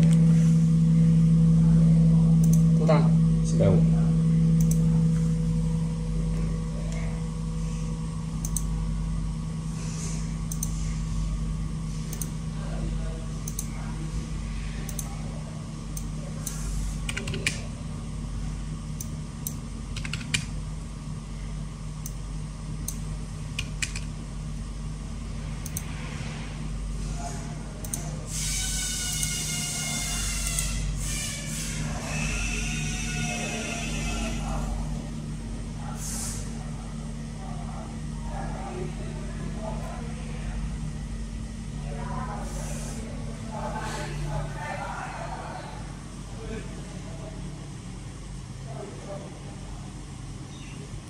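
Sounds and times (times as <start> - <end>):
low electrical hum: 0.0 - 51.0
computer mouse clicking: 8.4 - 8.7, 10.5 - 10.8, 12.1 - 12.3, 13.4 - 13.7, 14.9 - 15.1, 16.0 - 17.6, 19.0 - 20.5, 23.6 - 24.1, 25.6 - 25.9.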